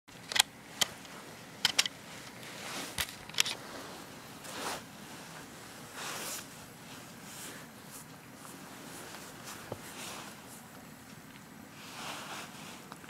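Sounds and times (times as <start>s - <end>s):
soft rustling swishes: 2.0s - 3.0s, 3.6s - 13.0s.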